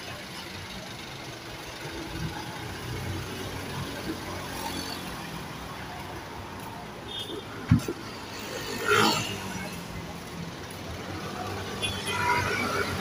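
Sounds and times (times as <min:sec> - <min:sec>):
vehicle engine idling: 0:00.0 - 0:04.5
street traffic: 0:00.0 - 0:13.0.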